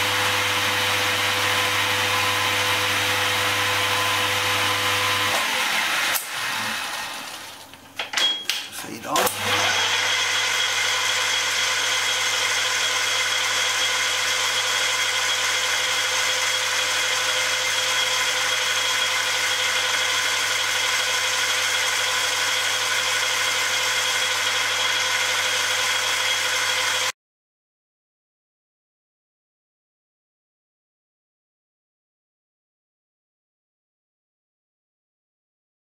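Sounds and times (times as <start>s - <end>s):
metal lathe running: 9.2s - 27.1s.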